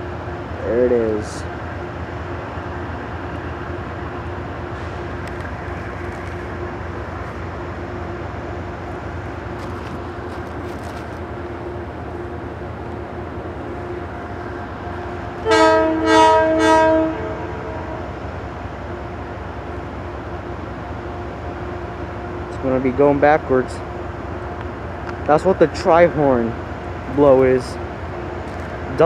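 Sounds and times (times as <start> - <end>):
diesel locomotive drone: 0.0 - 29.0
train horn blasts: 15.4 - 18.2.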